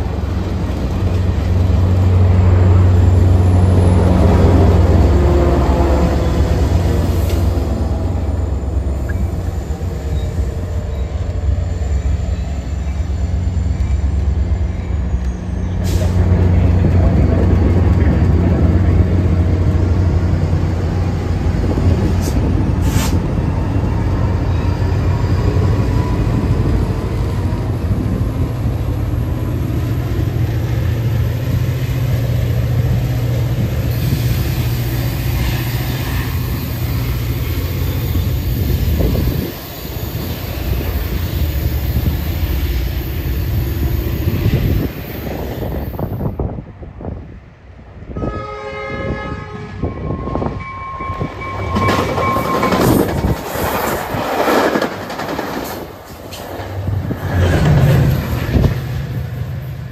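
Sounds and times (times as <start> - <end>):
diesel locomotive engine humming: 0.0 - 59.9
hiss: 33.9 - 46.1.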